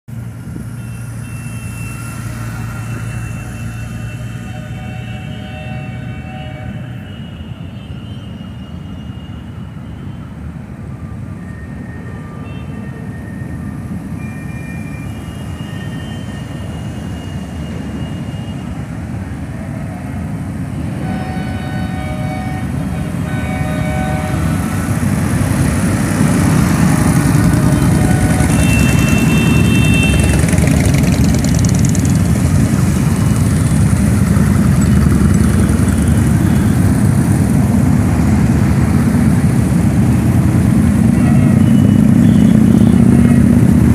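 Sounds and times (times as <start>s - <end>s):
short horn toots: 0.8s - 9.4s
motorcycle engines rumbling past: 23.1s - 43.9s.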